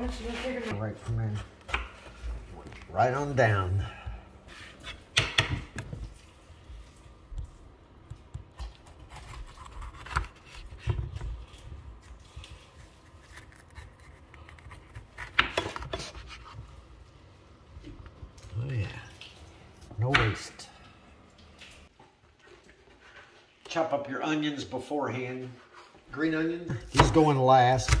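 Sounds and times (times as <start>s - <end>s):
knife slicing pepper on board: 14.5s - 16.6s.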